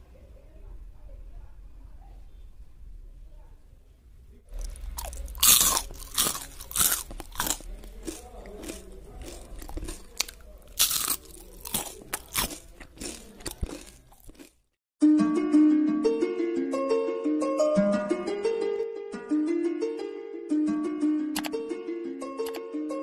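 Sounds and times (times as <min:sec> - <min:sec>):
chewing crunches: 0:04.5 - 0:14.6
crunching bites: 0:04.5 - 0:14.6.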